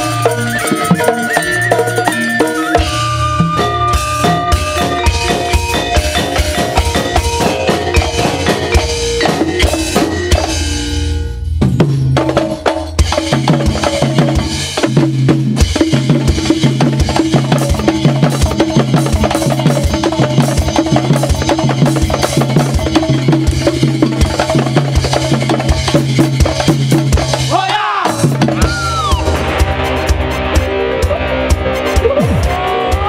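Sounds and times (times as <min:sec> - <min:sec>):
gamelan ensemble playing: 0:00.0 - 0:14.8
metallophones struck: 0:00.0 - 0:15.0
drumming: 0:00.0 - 0:33.0.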